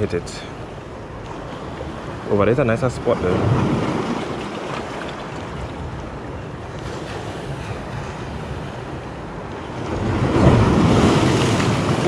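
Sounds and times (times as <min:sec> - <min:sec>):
waves washing against rocks: 0:09.7 - 0:12.0.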